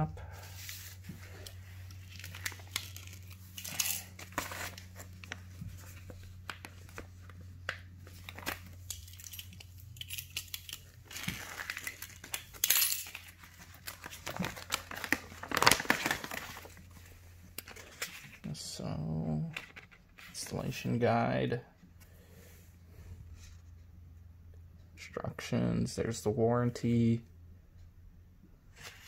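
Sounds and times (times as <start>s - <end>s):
plastic packaging crinkling: 0.6s - 17.0s.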